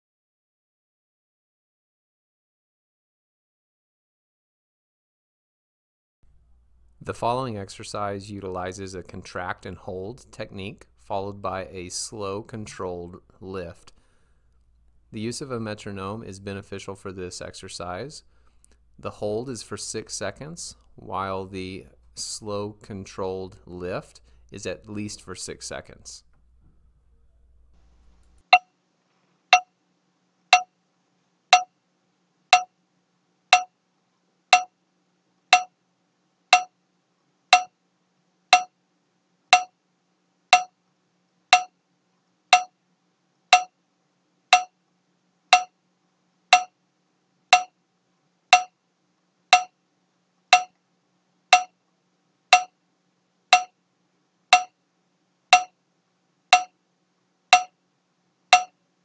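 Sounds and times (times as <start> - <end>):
metronome ticking: 33.5 - 33.7, 34.5 - 34.7, 35.5 - 35.7, 36.5 - 36.7, 37.5 - 37.7, 38.5 - 38.7, 39.5 - 39.7, 40.5 - 40.7, 41.5 - 41.7, 42.5 - 42.7, 43.5 - 43.7, 44.5 - 44.8, 45.5 - 45.7, 46.5 - 46.7, 47.5 - 47.7, 48.5 - 48.7, 49.5 - 49.8, 50.5 - 50.8, 51.5 - 51.7, 52.5 - 52.7, 53.5 - 53.8, 54.5 - 54.7, 55.5 - 55.7, 56.5 - 56.7, 57.5 - 57.7, 58.5 - 58.7.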